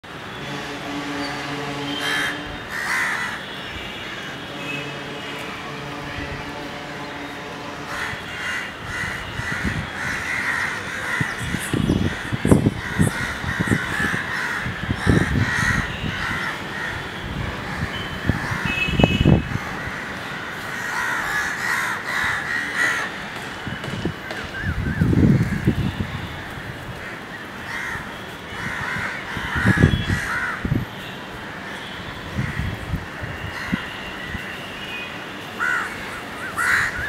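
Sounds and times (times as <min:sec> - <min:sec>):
crows cawing: 0:01.9 - 0:04.5, 0:07.8 - 0:18.8, 0:19.4 - 0:23.2, 0:24.6 - 0:25.8, 0:26.6 - 0:30.7, 0:31.6 - 0:33.9, 0:35.6 - 0:37.0
wind buffeting microphone: 0:08.8 - 0:10.4, 0:11.1 - 0:19.9, 0:23.6 - 0:27.1, 0:28.6 - 0:30.9.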